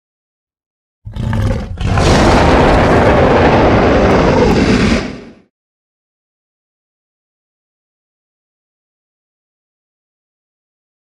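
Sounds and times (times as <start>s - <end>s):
monster roar: 1.1s - 5.4s.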